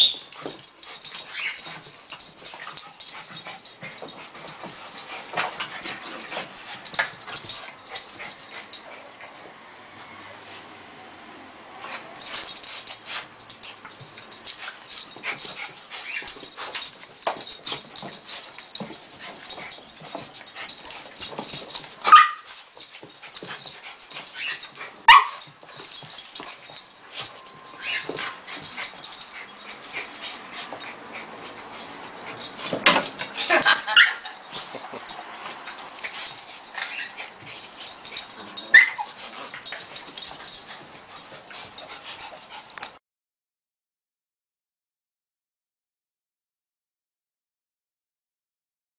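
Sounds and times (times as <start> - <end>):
dogs scuffling on rug: 0.0 - 9.5, 11.8 - 42.8
small dog yips: 38.7 - 39.1.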